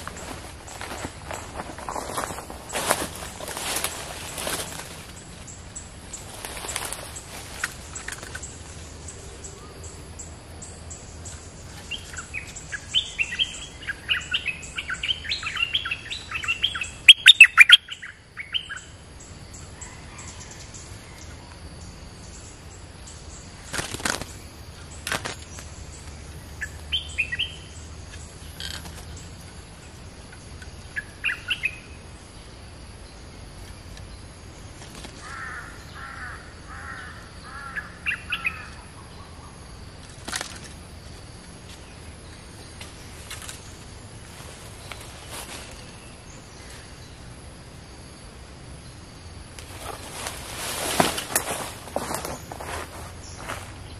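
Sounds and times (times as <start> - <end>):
birds singing in bubbling phrases: 8.0 - 18.9, 30.9 - 32.0
high insect buzz: 21.5 - 53.9.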